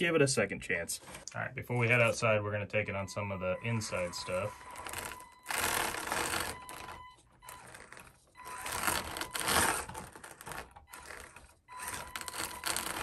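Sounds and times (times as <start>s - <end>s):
electric toy truck motor whirring: 4.3s - 13.0s.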